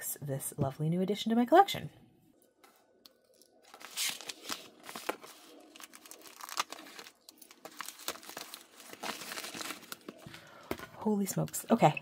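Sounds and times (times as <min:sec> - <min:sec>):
plastic crinkling and tearing: 0:03.1 - 0:10.4.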